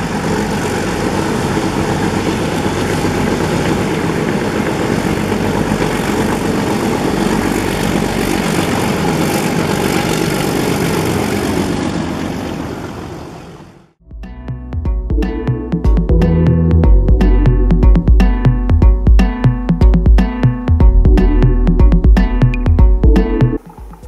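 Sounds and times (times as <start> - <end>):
diesel locomotive engine under load: 0.0 - 13.9.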